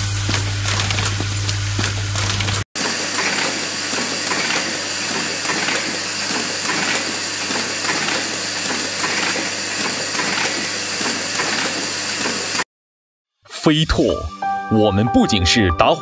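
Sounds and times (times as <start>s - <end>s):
mechanical clatter: 0.1s - 12.6s
machine hiss: 2.8s - 12.6s.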